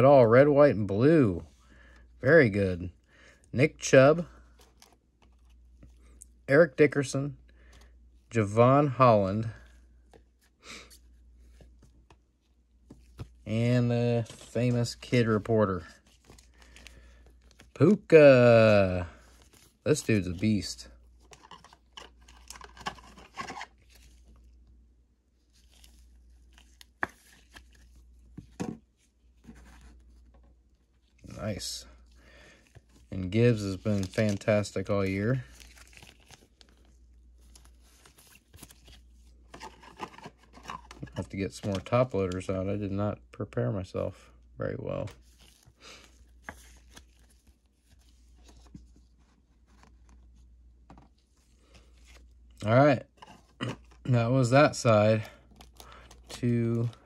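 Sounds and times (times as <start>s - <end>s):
plastic rustling and scraping: 14.1s - 24.6s, 25.5s - 31.7s, 32.8s - 42.4s, 44.9s - 57.0s.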